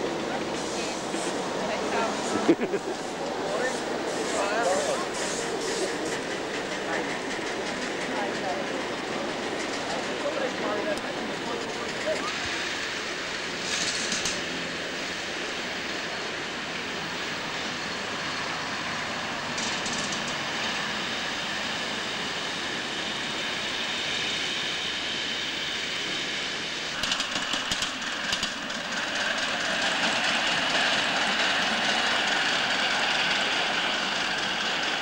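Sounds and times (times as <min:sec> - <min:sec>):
steam locomotive rushing: 0:00.0 - 0:35.0
steam hiss: 0:00.4 - 0:10.3, 0:11.7 - 0:16.6, 0:17.2 - 0:35.0.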